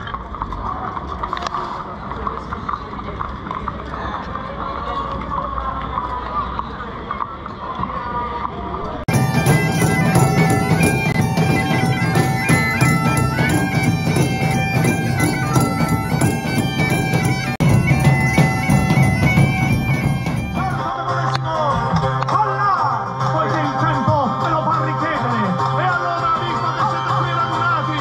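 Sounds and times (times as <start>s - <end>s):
drum beating: 8.9s - 22.6s
bagpipes playing a tune: 9.1s - 21.0s.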